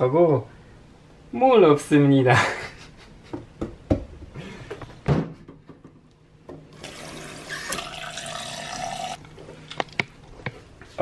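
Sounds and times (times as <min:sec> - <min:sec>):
tap water running into jar: 0:06.8 - 0:09.2.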